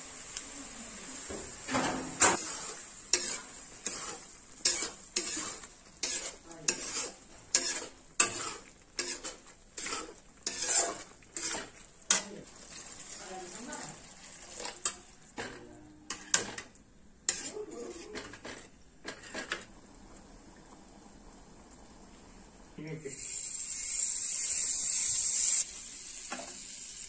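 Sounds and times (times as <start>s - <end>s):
sauce sizzling: 0.0s - 15.4s, 16.0s - 27.0s
spatula scraping metal pan: 1.7s - 13.0s, 14.6s - 19.7s.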